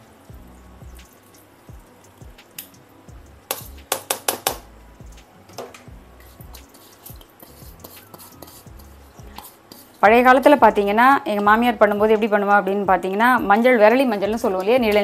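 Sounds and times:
strainer rapped against bowl: 3.5s - 10.0s.

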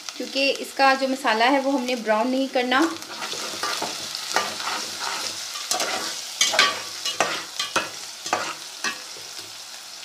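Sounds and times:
onions sizzling in hot fat: 0.0s - 10.0s
spoon scraping pot: 3.1s - 8.6s.

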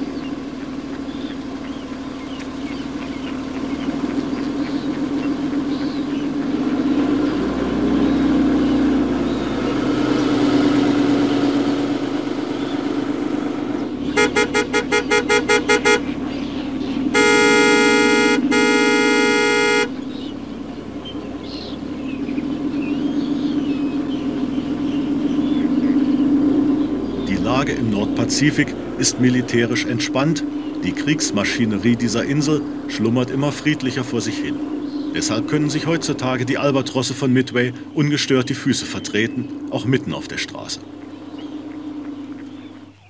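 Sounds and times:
vehicle engine running: 0.0s - 43.0s
car horn toots and blasts: 12.8s - 21.2s.

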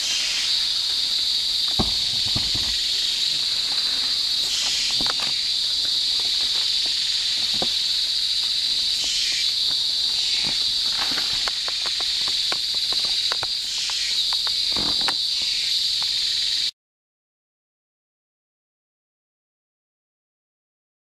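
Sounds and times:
rustles in dry leaf litter: 0.0s - 13.7s
insects droning: 0.0s - 16.7s.

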